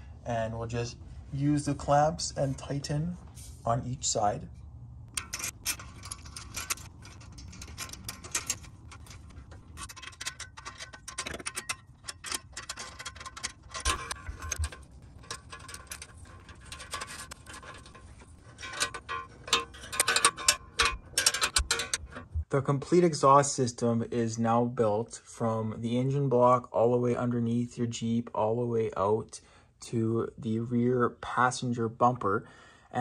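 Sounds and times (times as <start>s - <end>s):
small metallic clicks and clinks: 5.1s - 22.3s.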